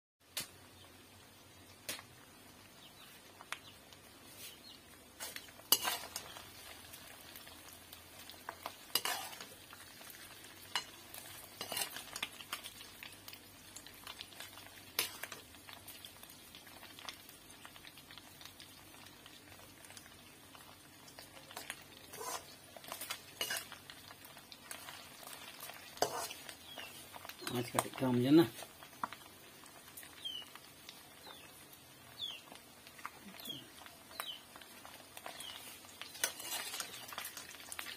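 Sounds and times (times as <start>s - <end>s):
food sizzling in oil: 0.2s - 37.9s
metal spoon scraping a pan: 5.2s - 6.8s, 8.3s - 9.6s, 10.7s - 12.6s, 15.0s - 15.5s, 21.6s - 23.8s, 24.7s - 27.8s, 35.2s - 37.8s.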